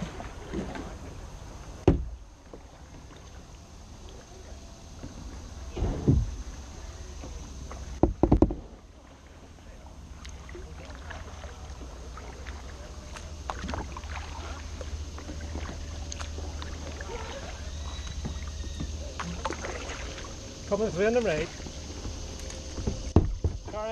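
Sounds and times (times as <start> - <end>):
paddle splashing and dripping: 0.0 - 5.4, 6.3 - 23.9
low steady rumble: 0.0 - 23.9
knocks on kayak hull: 1.8 - 2.2, 8.0 - 8.7, 22.8 - 23.8.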